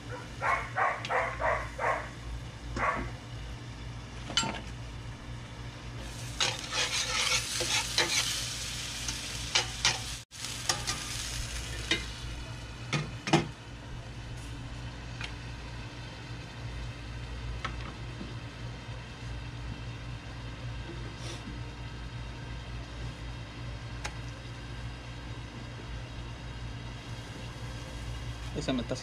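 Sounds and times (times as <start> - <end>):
food sizzling in pans: 6.0 - 13.5
metal spatula scraping: 6.3 - 8.4
metal clanking on cast iron: 9.5 - 11.1.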